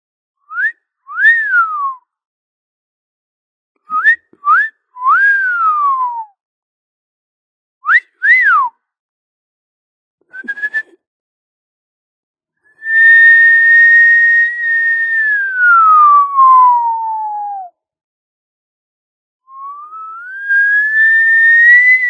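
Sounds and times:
mouth whistling: 0:10.3 - 0:11.0, 0:12.8 - 0:17.6, 0:19.5 - 0:22.0.

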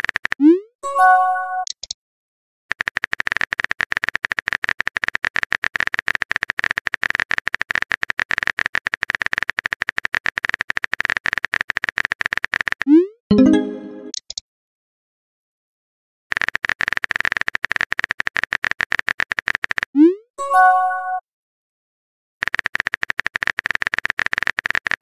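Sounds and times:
phone keyboard typing clicks: 0:01.6 - 0:02.0, 0:02.7 - 0:12.9, 0:16.4 - 0:19.9, 0:22.5 - 0:25.0
chiming tones: 0:13.3 - 0:14.2.

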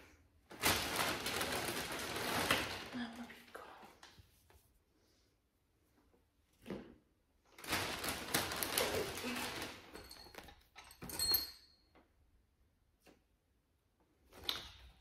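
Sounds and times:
clinks with high ringing: 0:10.0 - 0:11.9.

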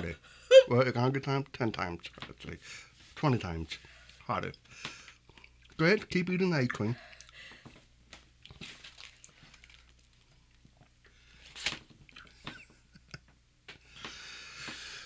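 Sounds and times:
foil wrapper crinkling: 0:08.4 - 0:10.3
ice cream being chewed: 0:08.4 - 0:11.0.

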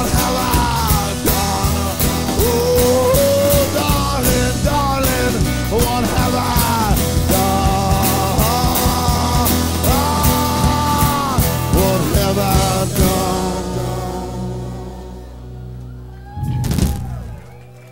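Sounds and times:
drums with cymbals: 0:00.0 - 0:14.0
strummed acoustic guitar: 0:00.0 - 0:15.6
electric guitar: 0:00.0 - 0:17.8.

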